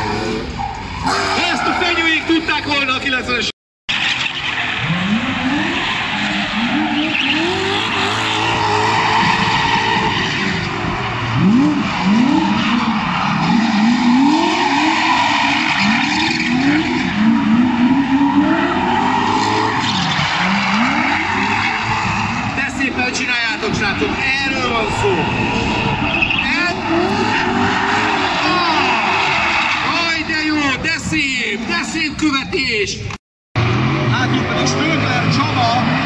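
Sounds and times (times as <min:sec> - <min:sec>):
car engine revving: 0:03.9 - 0:29.9, 0:33.6 - 0:36.0
tyres squealing: 0:03.9 - 0:30.2.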